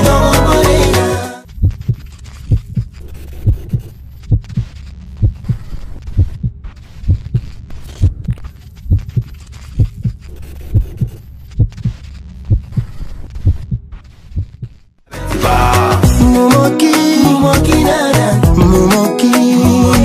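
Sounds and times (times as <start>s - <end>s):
deep heartbeat thumps: 1.6s - 14.8s, 18.4s - 18.9s.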